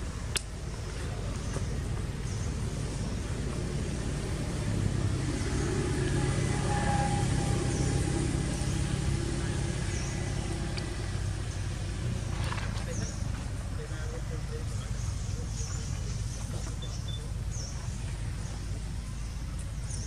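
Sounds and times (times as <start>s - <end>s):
vehicle engine passing by: 0.9s - 20.0s.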